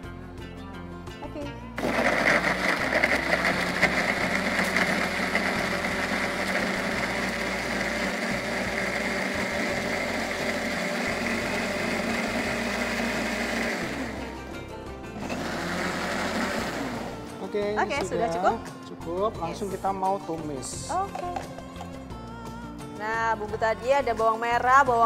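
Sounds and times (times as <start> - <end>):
blender grinding paste: 1.8 - 14.6, 15.2 - 17.4.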